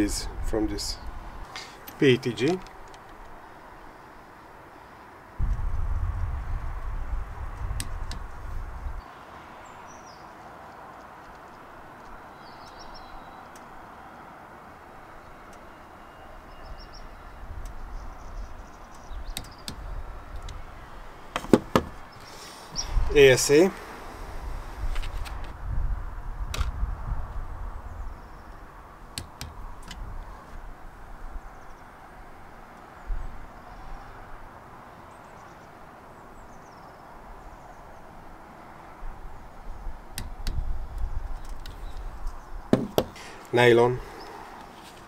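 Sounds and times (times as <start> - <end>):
outdoor background noise: 0.0 - 45.0
low rumble: 5.4 - 9.0
faint bird chirps: 12.1 - 14.2, 15.0 - 20.0.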